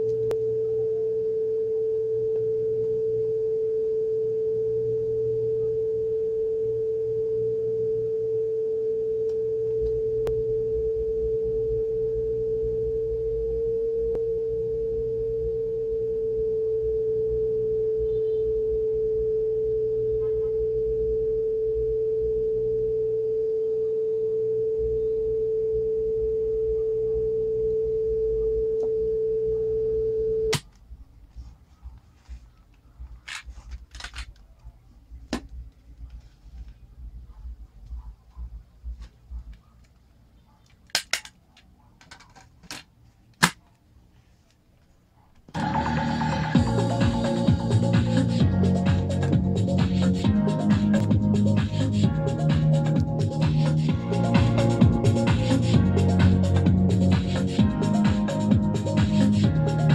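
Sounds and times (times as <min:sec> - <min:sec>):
cassette playing pure tone: 0:00.0 - 0:41.3, 0:45.4 - 0:59.9.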